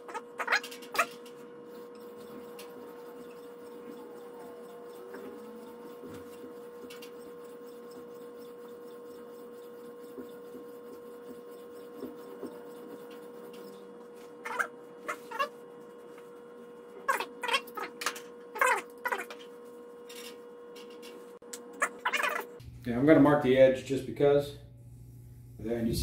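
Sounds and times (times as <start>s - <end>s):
steady hum: 0.0s - 26.0s
sharpening stone scraping steel: 14.4s - 15.5s.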